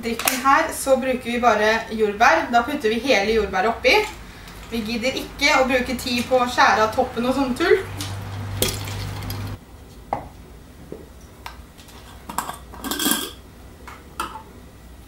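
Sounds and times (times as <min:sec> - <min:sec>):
glass jars clinking: 0:12.3 - 0:13.4.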